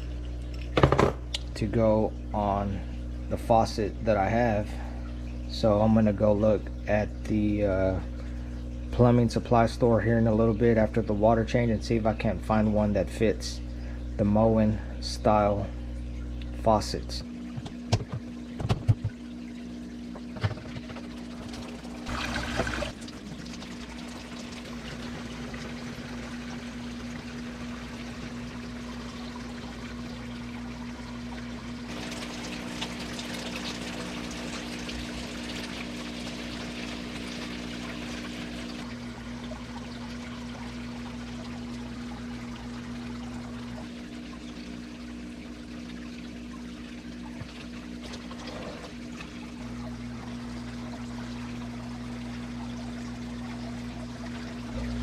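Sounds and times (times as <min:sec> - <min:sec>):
low hum: 0:00.0 - 0:55.0
water pouring from siphon hose: 0:21.0 - 0:55.0.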